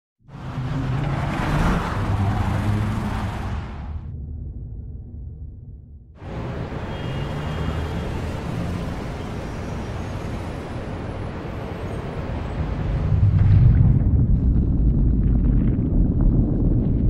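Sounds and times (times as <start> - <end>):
street traffic noise: 0.2 - 4.0, 6.2 - 13.4.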